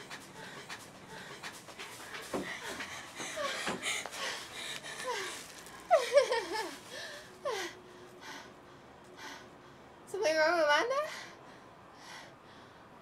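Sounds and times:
girls panting: 0.0s - 10.0s
girls laughing: 2.6s - 7.6s.

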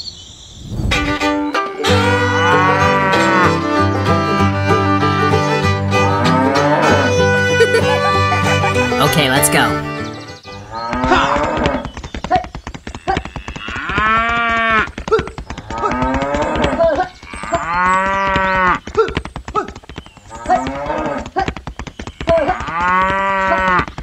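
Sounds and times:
cattle mooing: 2.4s - 3.6s.

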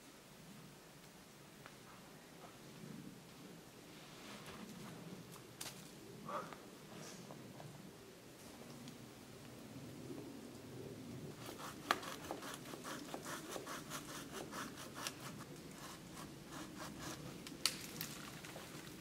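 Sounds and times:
hand saw cutting branch: 11.3s - 17.5s.

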